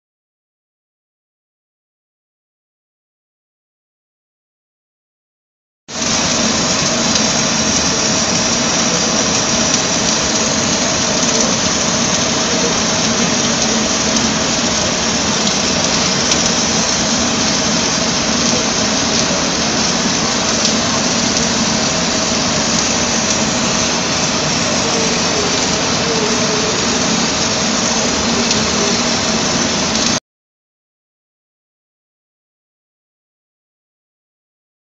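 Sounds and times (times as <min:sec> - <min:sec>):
welding arc hissing: 0:05.9 - 0:30.2.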